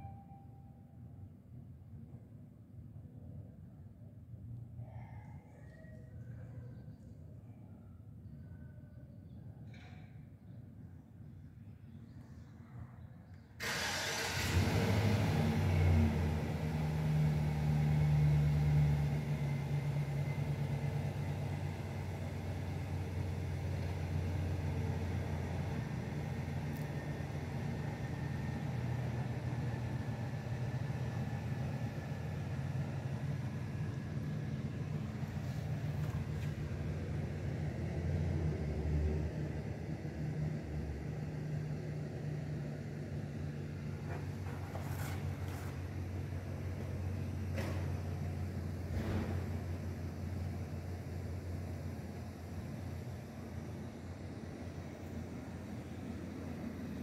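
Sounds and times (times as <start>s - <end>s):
machine starting up: 13.6s - 16.3s.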